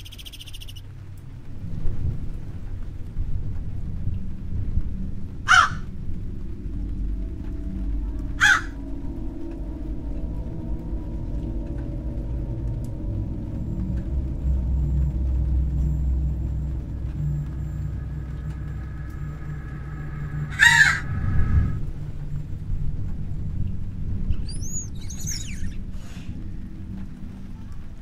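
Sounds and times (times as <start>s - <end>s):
low steady drone: 0.0s - 28.0s
crow cawing: 5.5s - 5.8s, 8.4s - 8.8s, 20.3s - 21.2s
high arching squeaks: 24.3s - 26.4s.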